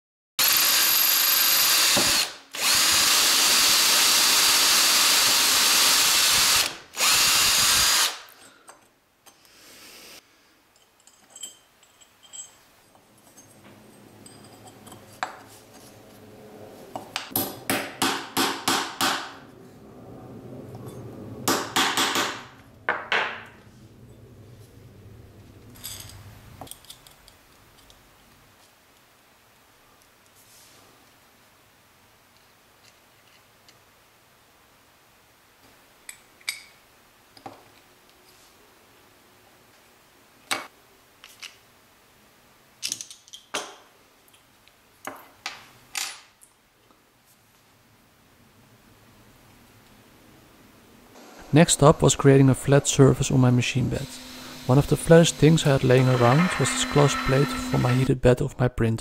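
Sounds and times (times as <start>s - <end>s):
electric drill running: 0.4s - 8.3s, 51.2s - 58.1s.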